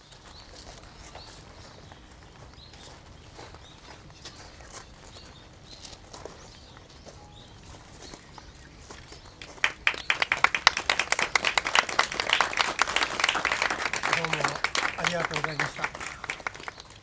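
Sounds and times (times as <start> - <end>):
faint bird chirps: 0.0 - 10.8
crowd applauding: 9.4 - 17.0.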